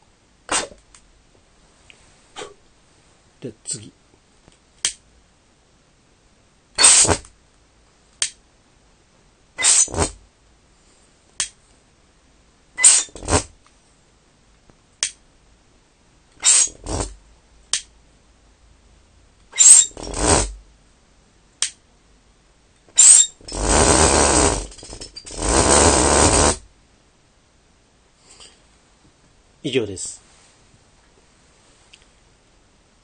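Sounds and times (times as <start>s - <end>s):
bottle jet buzzing: 0.5s - 0.8s, 6.8s - 7.2s, 9.6s - 10.2s, 12.8s - 13.5s, 16.4s - 17.1s, 19.6s - 20.6s, 23.0s - 26.6s
sharp click: 4.5s - 5.0s, 8.2s - 8.4s, 15.0s - 15.2s, 17.7s - 17.9s, 21.6s - 21.8s
vapour igniting in short bursts: 6.8s - 7.2s, 9.6s - 10.2s, 23.0s - 24.7s, 25.4s - 26.6s.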